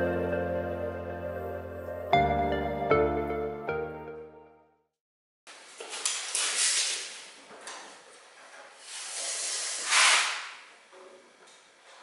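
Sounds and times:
tape measure scraping metal: 8.8 - 10.7.

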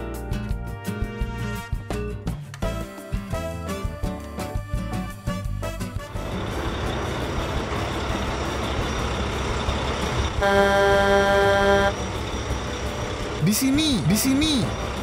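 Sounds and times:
truck engine running: 6.0 - 15.0
truck horn honk: 10.4 - 12.1.

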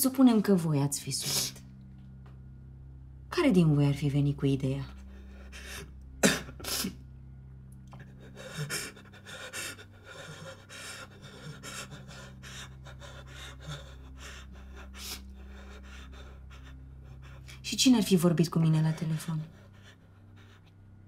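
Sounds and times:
low steady hum: 0.0 - 21.0
ragged gasping breaths: 7.9 - 17.7
young man crying: 8.2 - 17.4.

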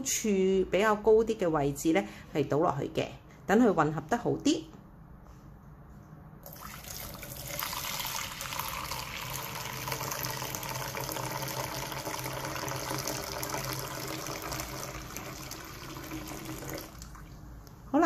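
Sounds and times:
liquid pouring and splashing: 6.4 - 17.5.

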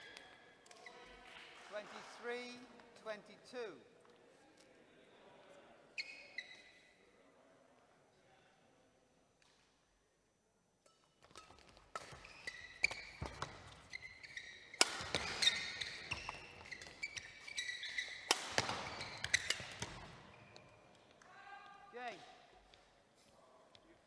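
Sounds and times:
shoes squeaking on court: 6.0 - 7.0, 11.2 - 21.2
racket hitting shuttlecock: 11.0 - 21.1.

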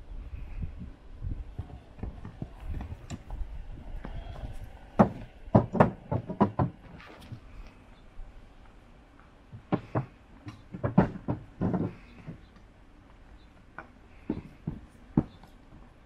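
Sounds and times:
hooves knocking on wooden boards: 1.5 - 7.6, 9.1 - 15.9
horse walking on dirt: 1.5 - 7.8.

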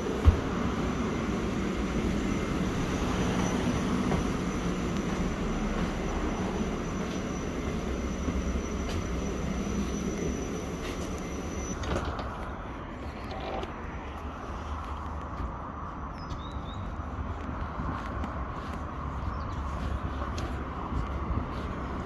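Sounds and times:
diesel bus engine idling: 0.0 - 13.1
faint high whine: 0.0 - 14.2.

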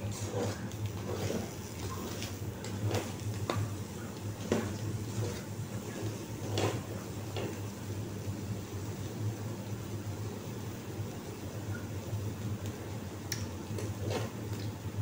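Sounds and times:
metal utensil scraping frying pan: 0.0 - 3.2, 4.4 - 6.9.

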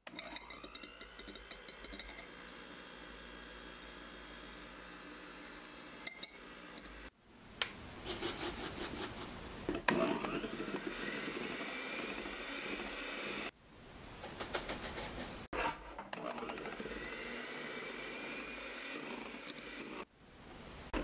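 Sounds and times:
electric hand mixer whirring: 0.0 - 7.1, 9.9 - 13.5, 16.1 - 20.1.

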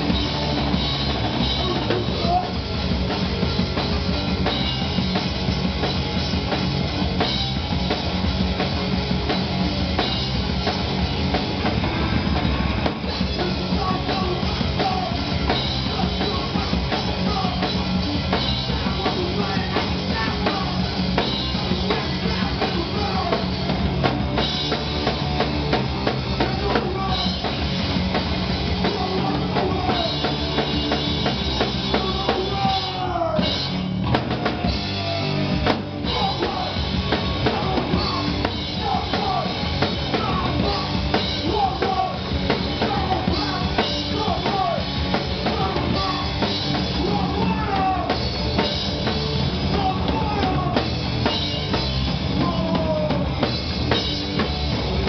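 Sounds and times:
drum kit with cymbals: 0.0 - 55.0
electric guitar: 0.0 - 55.0
rock band playing live: 0.0 - 55.0
person singing: 13.2 - 17.8, 18.7 - 21.0, 26.4 - 27.5, 28.8 - 30.4, 31.8 - 48.2, 49.6 - 50.9, 52.3 - 53.4.

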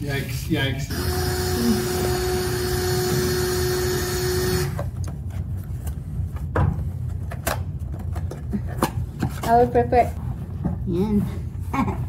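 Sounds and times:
power drill whining: 0.9 - 4.8.

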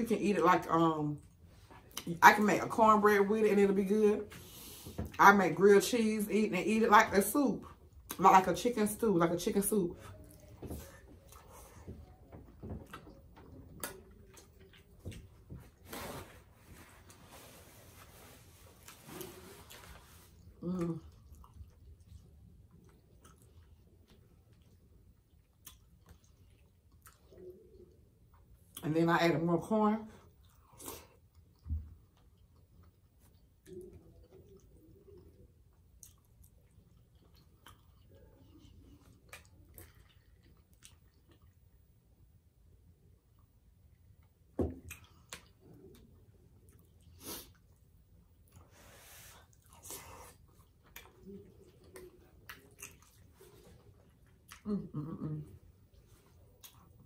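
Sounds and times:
eating sounds: 10.0 - 15.8, 18.8 - 28.8, 30.2 - 41.8, 49.4 - 57.0
faint chewing: 10.0 - 28.8, 30.1 - 42.3, 43.1 - 57.0.

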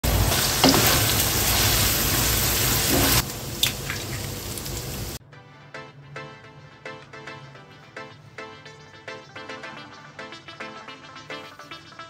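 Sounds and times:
meat sizzling in frying pan: 0.0 - 5.2.

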